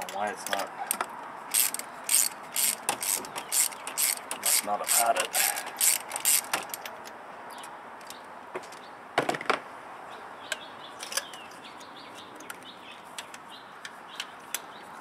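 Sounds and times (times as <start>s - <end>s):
ratchet clicks and knocks: 0.5s - 7.0s.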